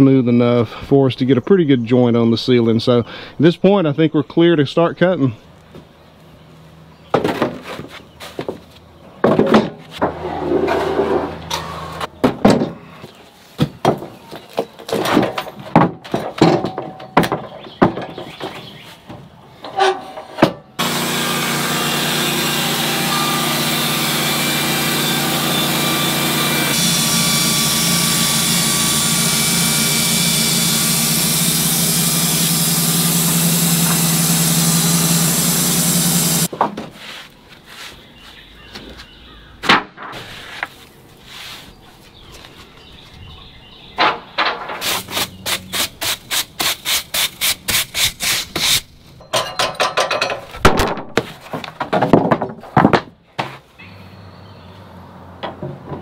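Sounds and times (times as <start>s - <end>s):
bandsaw mill running: 19.6s - 36.5s.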